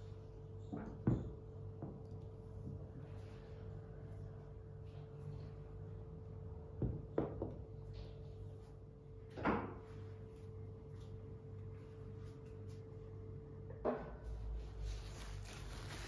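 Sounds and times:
steady low hum: 0.0s - 16.0s
ceramic pots knocking on a table: 0.7s - 2.0s, 6.8s - 7.7s.

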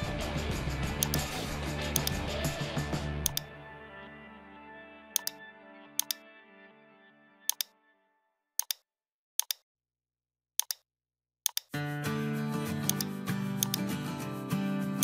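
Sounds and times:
background music: 0.0s - 8.4s, 11.8s - 15.0s
computer mouse clicks: 1.0s - 1.3s, 2.0s - 2.2s, 3.2s - 3.5s, 5.2s - 5.4s, 6.0s - 6.2s, 7.5s - 7.7s, 8.6s - 8.8s, 9.4s - 9.6s, 10.6s - 10.8s, 11.5s - 11.8s, 12.8s - 13.9s.

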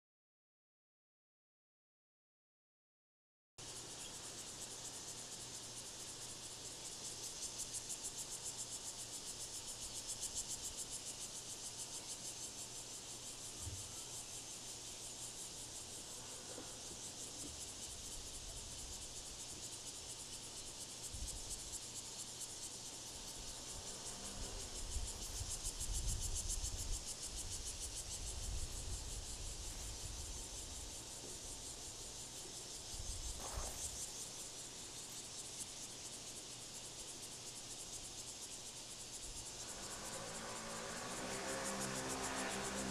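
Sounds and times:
high-pitched insect chorus: 3.6s - 42.9s.

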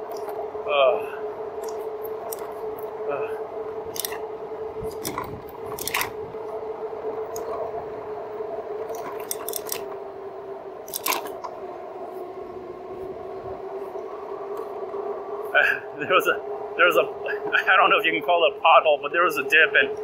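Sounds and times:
electric bike hub motor whining: 0.0s - 20.0s
bike frame clicks and rattles: 1.6s - 2.5s, 3.9s - 4.2s, 4.8s - 6.2s, 8.9s - 9.9s, 10.8s - 11.5s.

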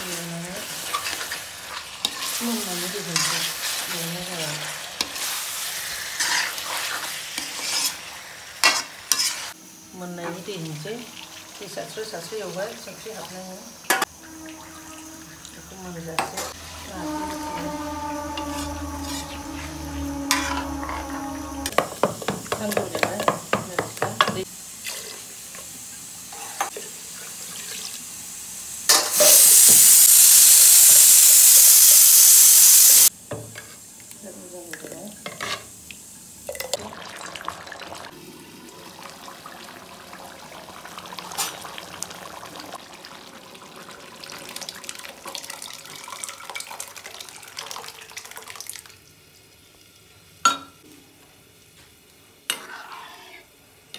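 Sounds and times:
metal spatula scraping a pan: 2.0s - 4.0s, 6.0s - 9.6s, 16.2s - 21.8s, 52.5s - 53.5s.

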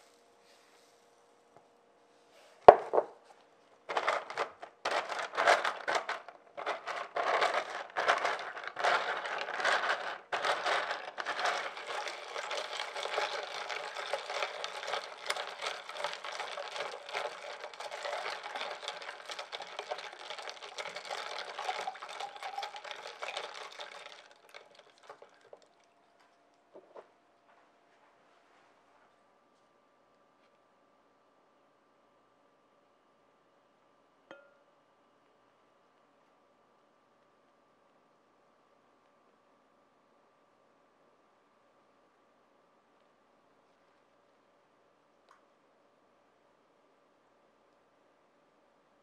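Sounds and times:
ice crunching in plastic jug: 3.9s - 25.7s.

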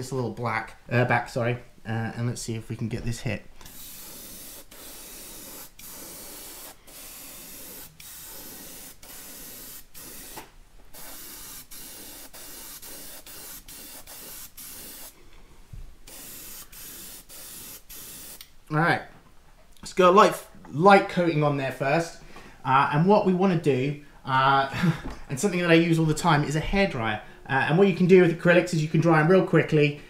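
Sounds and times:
airbrush hissing: 3.6s - 15.2s, 16.0s - 18.5s.

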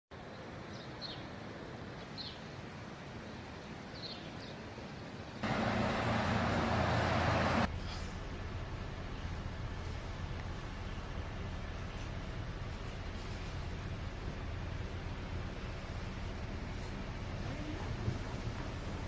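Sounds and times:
rushing noise with low hum: 4.7s - 19.0s
background rumble: 5.4s - 19.0s.

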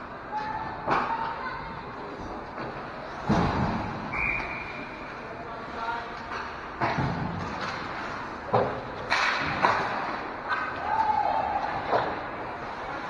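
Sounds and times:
hockey sticks and puck knocking: 6.2s - 12.2s.

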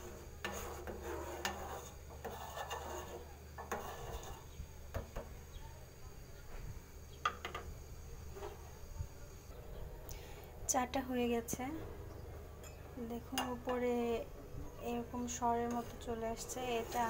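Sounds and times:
spoon scraping metal pot: 0.0s - 4.6s, 15.6s - 17.0s.

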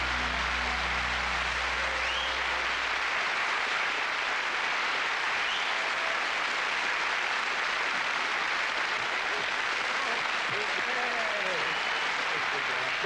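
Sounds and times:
band low note: 0.0s - 2.6s
audience applauding and cheering: 0.0s - 13.0s.

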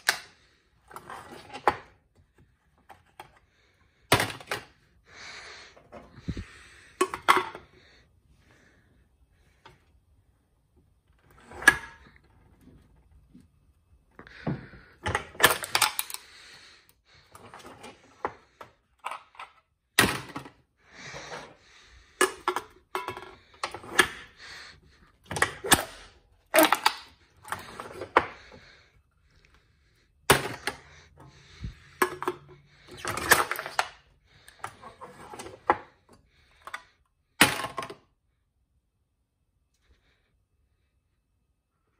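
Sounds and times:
can crusher clanking and crunching cans: 15.0s - 16.5s, 25.2s - 28.7s, 30.2s - 35.9s.

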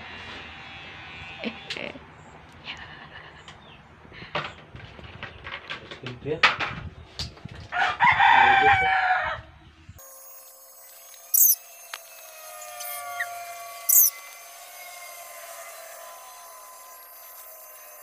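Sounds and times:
rooster crowing: 7.7s - 9.5s
sharp high-pitched hissing bursts: 10.8s - 11.7s.

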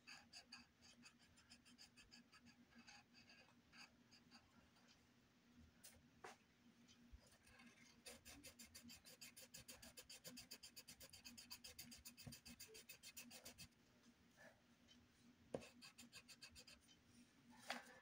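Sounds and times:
pencil scratching on paper: 0.0s - 5.0s, 7.3s - 13.7s, 15.6s - 16.9s.

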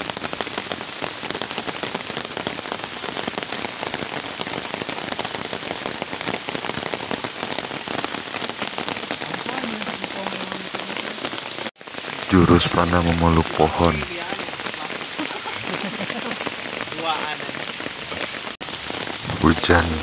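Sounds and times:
heavy rain on water and leaves: 0.0s - 20.0s.

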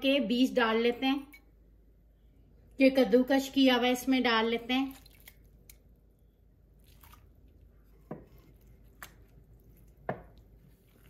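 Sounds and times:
soft squishes: 4.9s - 11.0s.

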